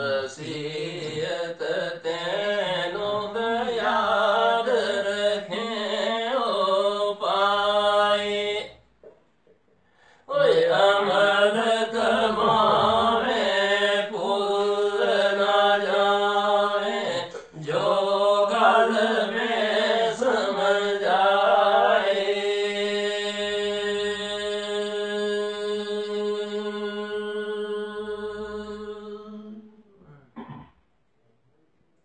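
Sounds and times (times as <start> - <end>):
men singing unaccompanied: 0.0 - 8.8, 10.3 - 29.8
low held drone tone: 11.5 - 14.6.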